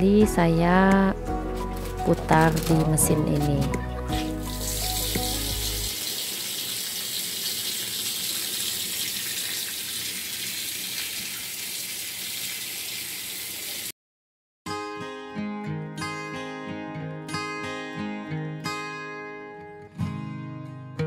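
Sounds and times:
water running into tub: 0:04.2 - 0:13.9.

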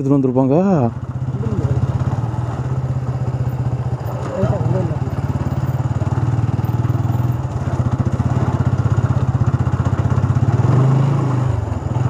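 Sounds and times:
motorcycle engine running: 0:00.2 - 0:12.0.

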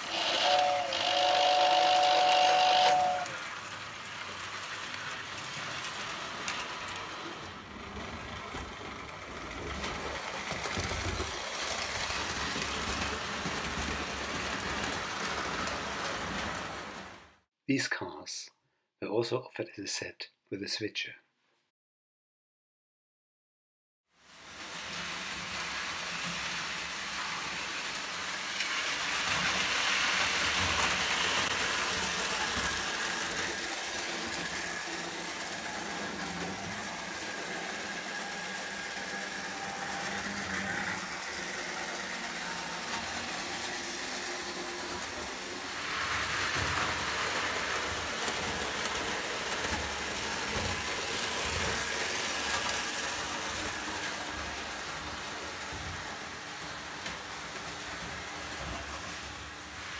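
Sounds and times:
toy trains rumbling on track: 0:00.0 - 0:17.4, 0:24.2 - 0:59.9.

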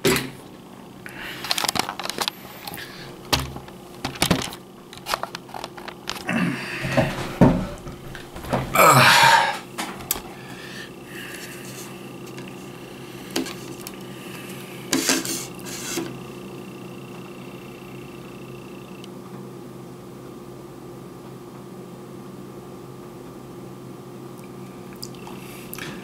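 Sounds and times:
background hum: 0:00.0 - 0:26.0
loud scrape: 0:14.9 - 0:16.1.

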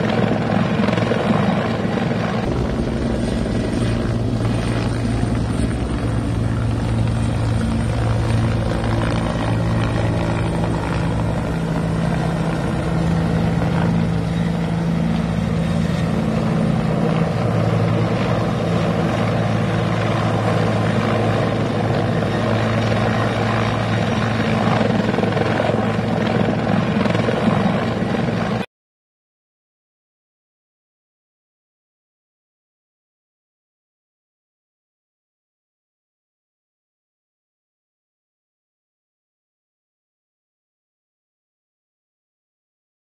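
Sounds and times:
helicopter rotor and engine hum: 0:00.0 - 0:28.7.

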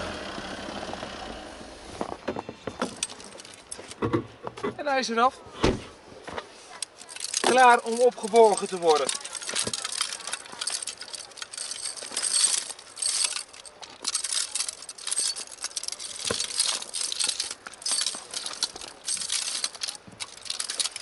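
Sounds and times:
snow chains clinking: 0:02.8 - 0:04.0, 0:06.7 - 0:21.0.

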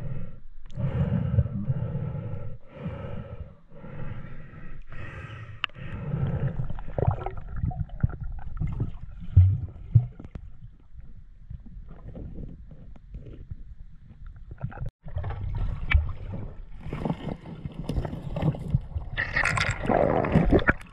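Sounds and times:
breathing through a snorkel: 0:00.0 - 0:07.4.

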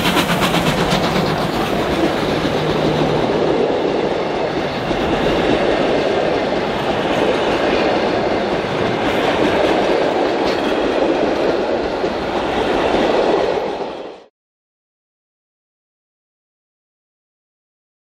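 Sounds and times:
train wheels rumbling on rails: 0:00.0 - 0:14.3.

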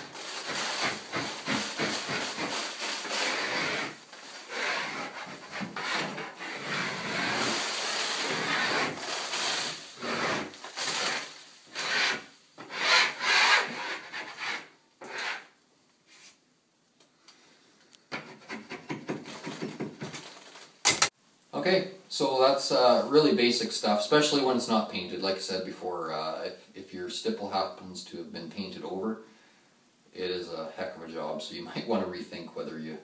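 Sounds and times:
scraper blade scraping ceiling: 0:00.0 - 0:15.5.

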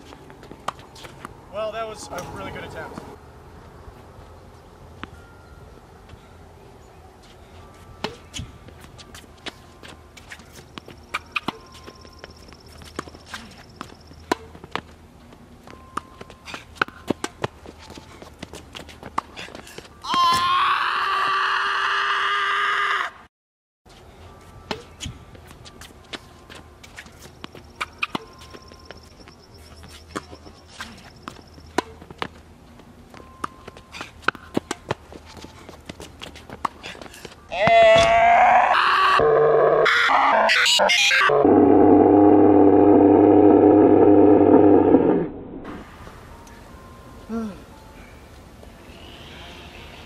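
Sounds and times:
shoes scuffing on court: 0:08.0 - 0:20.0
racket hitting tennis ball: 0:13.0 - 0:14.8.

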